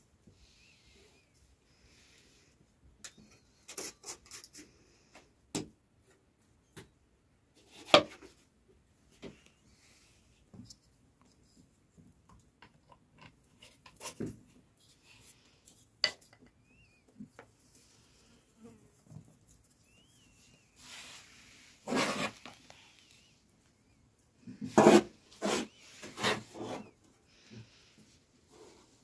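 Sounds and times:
faint high chirps: 0:16.6 - 0:17.2, 0:19.8 - 0:20.8
flour scraping rustle: 0:18.9 - 0:23.0.

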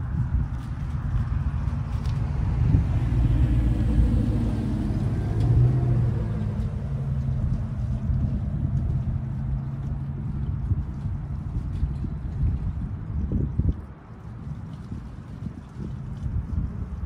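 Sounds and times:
pickup truck passing: 0:02.2 - 0:10.2.

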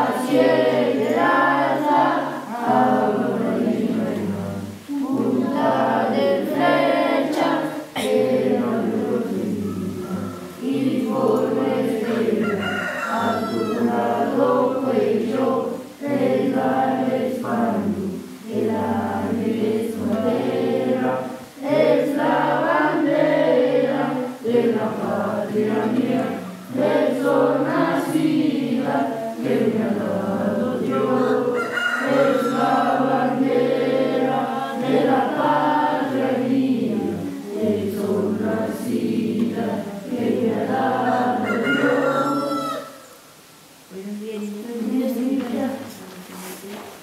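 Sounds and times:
children singing in unison: 0:00.0 - 0:43.1.

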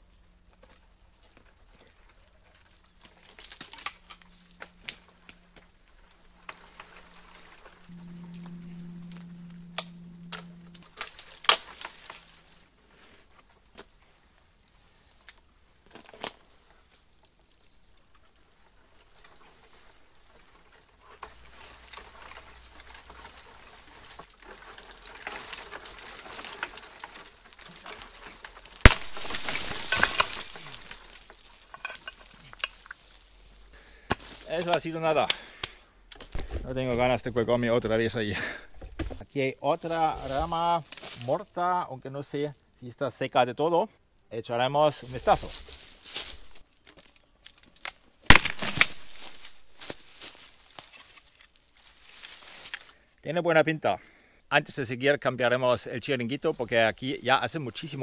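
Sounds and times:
twigs cracking: 0:00.0 - 0:12.6, 0:13.3 - 0:37.4, 0:39.8 - 0:41.7, 0:45.0 - 0:53.0
leaves rustling: 0:00.0 - 0:42.8, 0:44.8 - 0:53.2, 0:56.2 - 0:58.0
crashing through dry branches: 0:00.5 - 0:12.6, 0:18.6 - 0:37.1, 0:39.8 - 0:41.3, 0:45.0 - 0:52.9
branch cracking sharply: 0:03.0 - 0:05.6, 0:25.0 - 0:33.2, 0:45.4 - 0:51.6.

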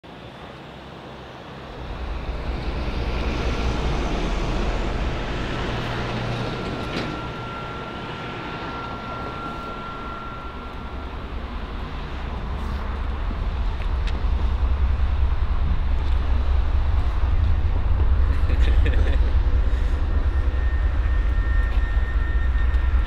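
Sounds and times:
street traffic rumble: 0:00.1 - 0:23.0
thin high tone: 0:01.8 - 0:13.3, 0:19.7 - 0:23.0.

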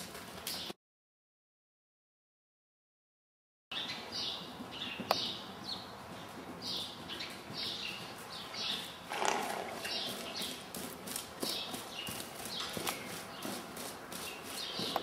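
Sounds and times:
hoofbeats on soft arena footing: 0:00.0 - 0:00.7, 0:04.4 - 0:15.0.

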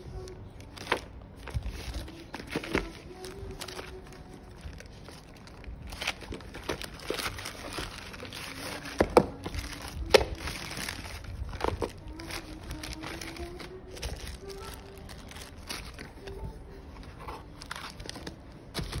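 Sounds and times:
plastic bag crinkling: 0:00.2 - 0:19.0.

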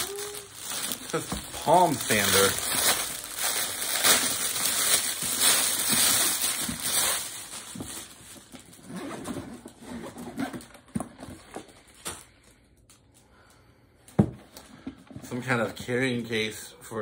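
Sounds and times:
plastic packaging crinkling: 0:00.0 - 0:09.8.

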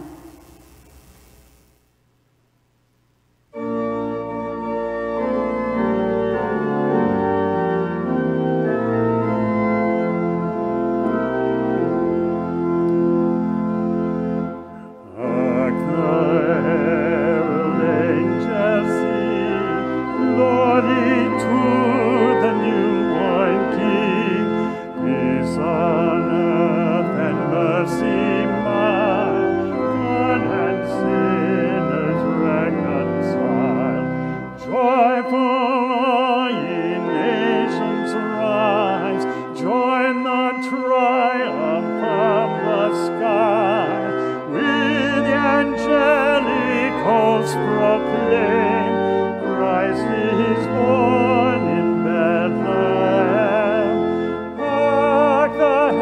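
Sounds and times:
person singing with vibrato: 0:00.0 - 0:00.6, 0:15.0 - 0:56.0
church organ playing chords: 0:03.5 - 0:56.0.

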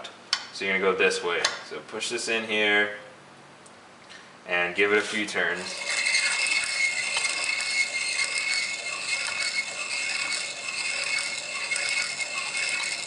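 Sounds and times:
grinding rasp with high whine: 0:05.6 - 0:13.0.

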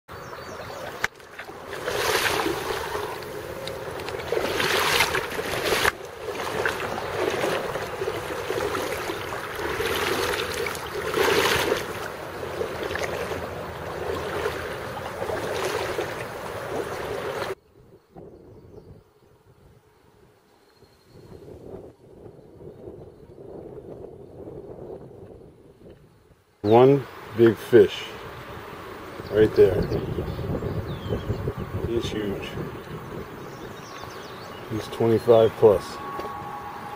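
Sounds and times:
wind buffeting microphone: 0:00.2 - 0:19.9, 0:21.1 - 0:26.4, 0:28.3 - 0:36.9
river water rushing: 0:00.5 - 0:17.6.

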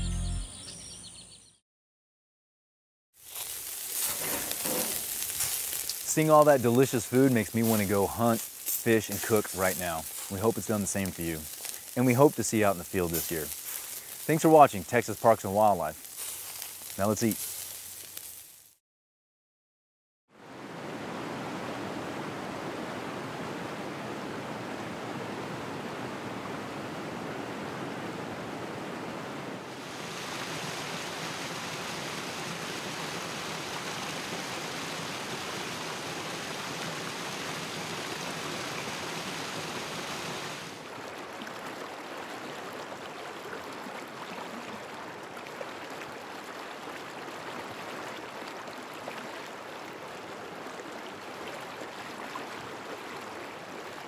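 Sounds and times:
water rushing over rocks: 0:04.1 - 0:16.0, 0:29.7 - 0:48.8.

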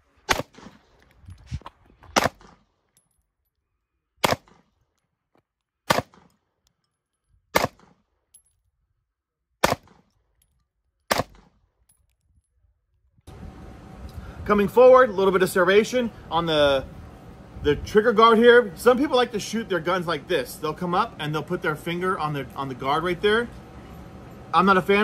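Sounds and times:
pistol shots cracking: 0:00.2 - 0:00.9, 0:02.2 - 0:02.7, 0:04.2 - 0:04.7, 0:05.8 - 0:06.4, 0:07.5 - 0:08.0, 0:09.6 - 0:10.1, 0:11.1 - 0:11.6.

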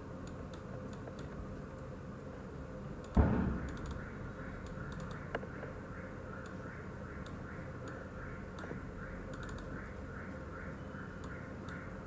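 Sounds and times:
keyboard and mouse clicks: 0:03.0 - 0:04.0, 0:04.6 - 0:05.4, 0:08.6 - 0:09.8.

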